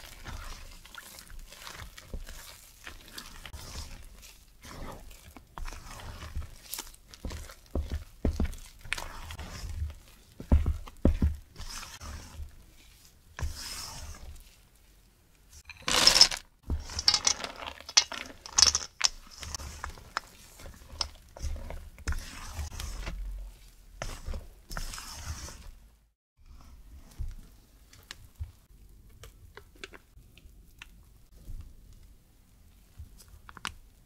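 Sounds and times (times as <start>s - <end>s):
spatula scraping metal bowl: 0.0s - 14.4s, 17.8s - 25.8s
chocolate chips rattling into bowl: 15.6s - 19.2s.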